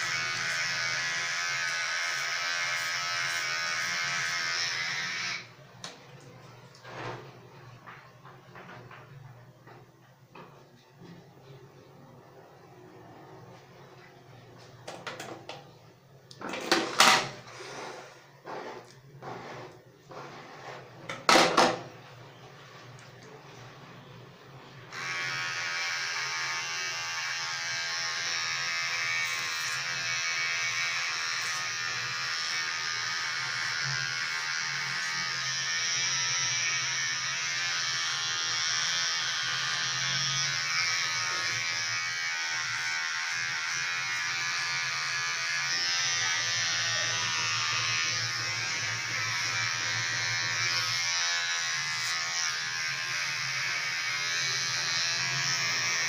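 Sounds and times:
electric hair clipper buzzing: 0:00.0 - 0:05.5, 0:24.9 - 0:56.0.

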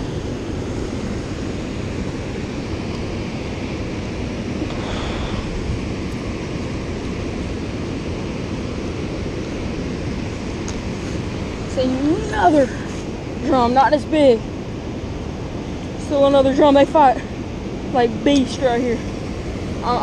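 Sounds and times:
river churning: 0:00.0 - 0:20.0.

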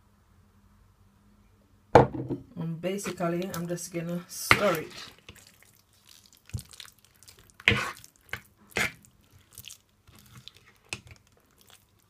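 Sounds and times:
batter being stirred by hand: 0:02.8 - 0:12.0.

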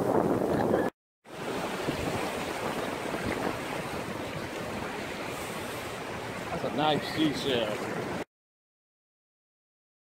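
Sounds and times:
wind on microphone: 0:00.0 - 0:07.3
surf washing in shallows: 0:00.0 - 0:08.3.

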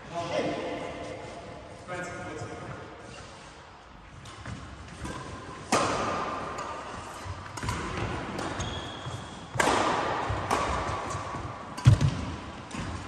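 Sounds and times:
racquet hitting shuttlecock: 0:04.2 - 0:13.0.

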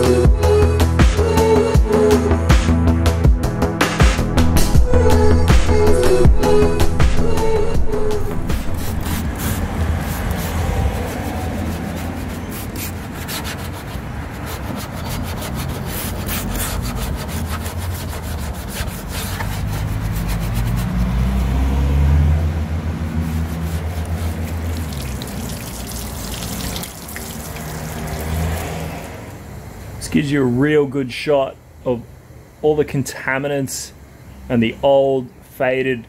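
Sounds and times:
brush scrubbing car paint: 0:08.5 - 0:21.6, 0:22.9 - 0:28.6.

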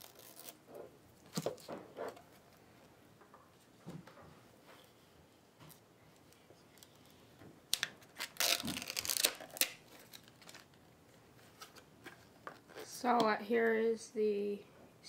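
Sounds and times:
plastic wrapping crinkling: 0:06.7 - 0:11.8.

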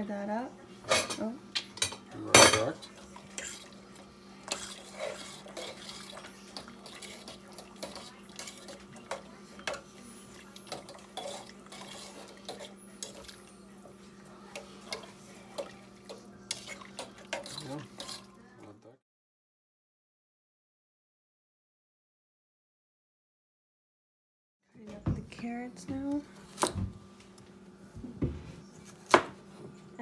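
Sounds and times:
spoon scraping metal pot: 0:01.8 - 0:03.8, 0:04.4 - 0:13.5, 0:16.5 - 0:18.4.

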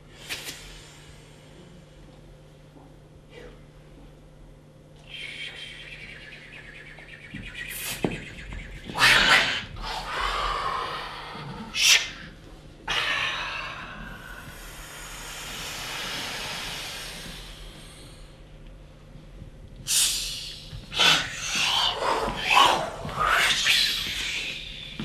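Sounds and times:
person hissing exhale: 0:12.9 - 0:18.4, 0:19.9 - 0:25.0.

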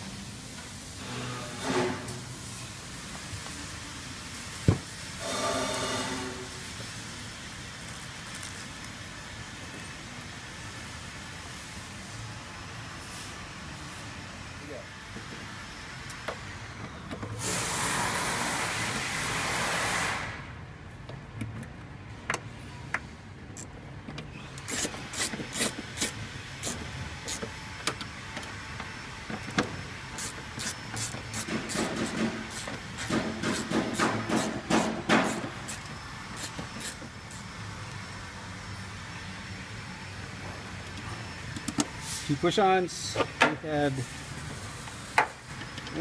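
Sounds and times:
hiss: 0:17.4 - 0:20.5.

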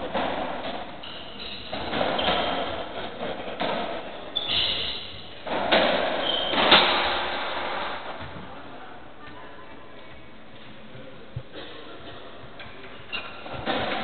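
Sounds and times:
shoes squeaking on wooden floor: 0:01.0 - 0:03.0, 0:04.4 - 0:05.2, 0:06.2 - 0:06.8, 0:12.1 - 0:13.8.

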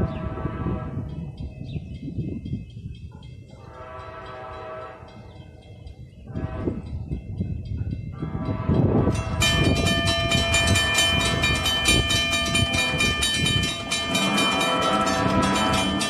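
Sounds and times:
low train rumble: 0:00.0 - 0:16.0
locomotive horn chord: 0:03.6 - 0:05.3, 0:12.4 - 0:16.0.

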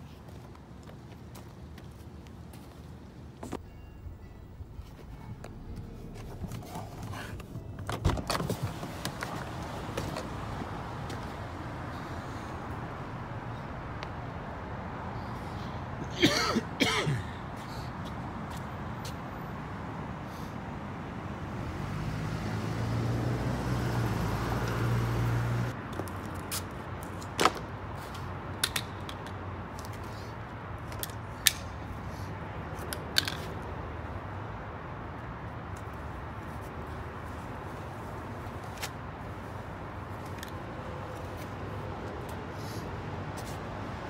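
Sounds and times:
vehicle engine hum: 0:02.3 - 0:16.2, 0:17.9 - 0:26.4.

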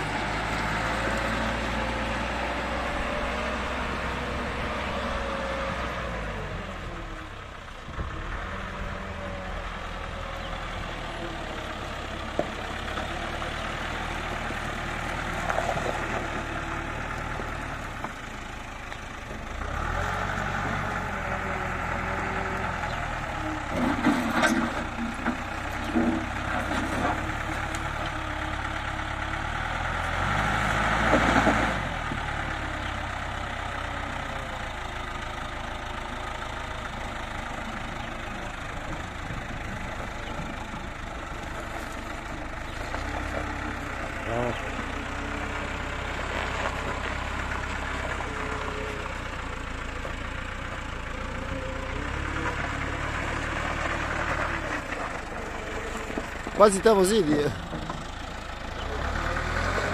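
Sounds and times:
diesel engine running and revving: 0:00.0 - 0:59.9
bucket clanking and scraping: 0:23.7 - 0:27.6.

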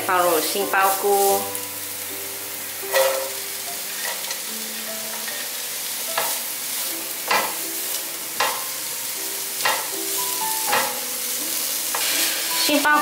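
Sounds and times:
vegetables sizzling in oil: 0:00.0 - 0:13.0.

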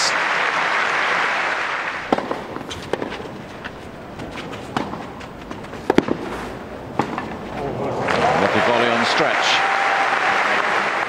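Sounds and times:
crowd applause: 0:00.0 - 0:02.6, 0:07.6 - 0:11.0
tennis racquet hitting ball: 0:02.0 - 0:08.2.

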